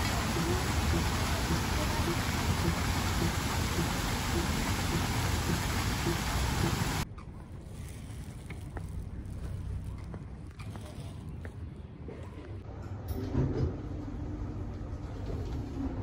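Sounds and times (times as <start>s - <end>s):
pond aerator splashing water: 0.0s - 7.0s.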